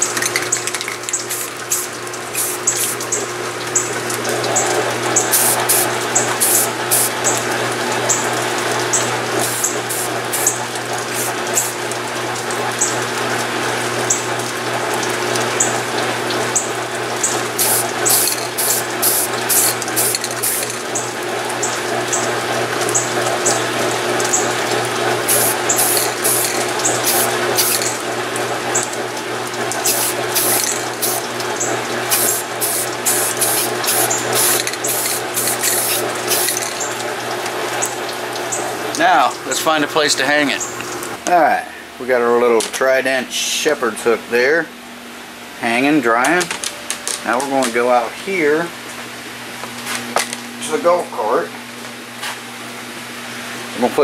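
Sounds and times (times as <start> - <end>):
spray-paint can hissing: 1.3 - 3.0, 5.3 - 7.2, 9.4 - 10.6, 11.2 - 11.8, 17.6 - 20.8, 25.3 - 28.0, 29.8 - 31.2, 32.1 - 36.8.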